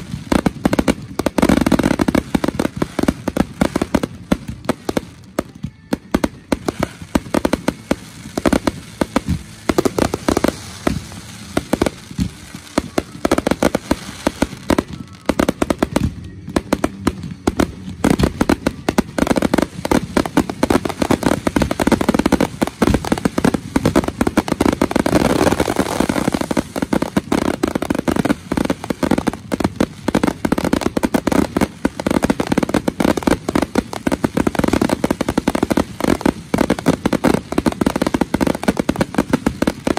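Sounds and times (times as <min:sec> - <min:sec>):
fireworks launching and bursting: 0:00.0 - 0:39.9.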